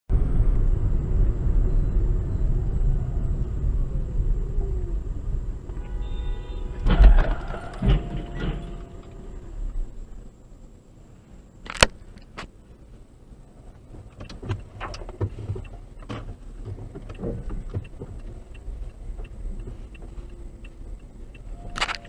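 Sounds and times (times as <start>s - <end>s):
car road and engine rumble: 0.1s - 22.0s
car crash bang: 6.6s - 10.0s
thuds: 6.7s - 9.8s.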